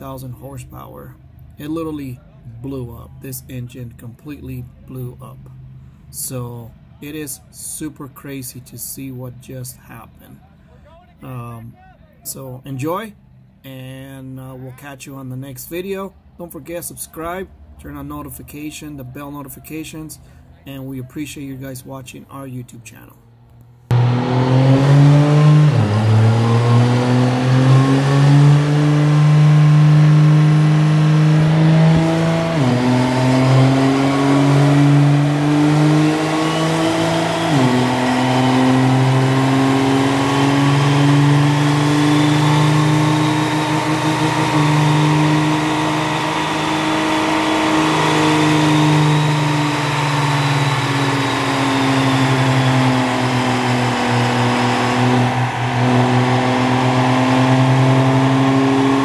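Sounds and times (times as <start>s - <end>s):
diesel engine running under load: 23.9s - 59.0s
high whine: 23.9s - 59.0s.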